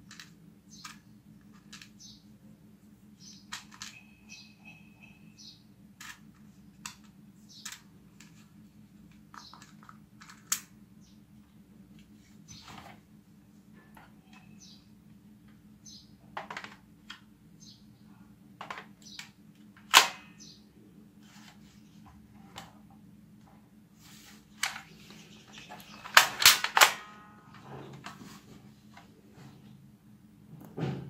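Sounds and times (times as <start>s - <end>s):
faint low hum: 0.0s - 31.0s
plastic toy gun clicks and knocks: 16.4s - 17.2s, 18.6s - 20.3s, 26.0s - 27.1s.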